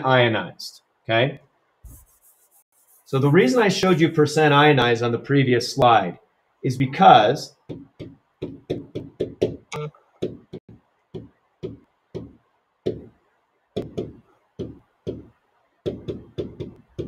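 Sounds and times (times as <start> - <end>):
marker strokes on whiteboard: 1.8 - 3.6.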